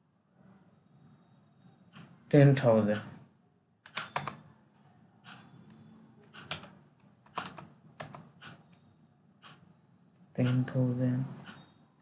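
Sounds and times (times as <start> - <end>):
computer keyboard keys clicking: 3.9 - 4.4, 6.2 - 8.7.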